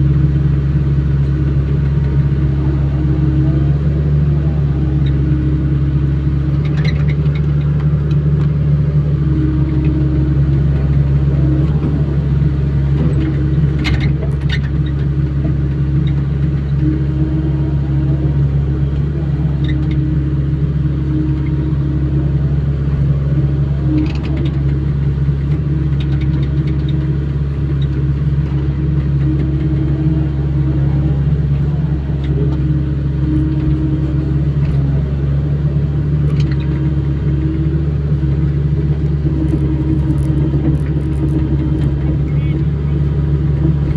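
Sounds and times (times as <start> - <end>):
diesel engine running: 0.0 - 43.9.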